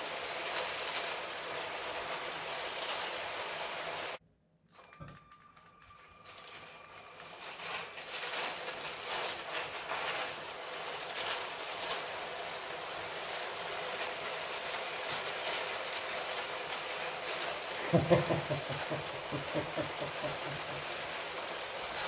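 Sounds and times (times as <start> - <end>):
toy train rattling on track: 0.0 - 4.2, 4.8 - 22.0.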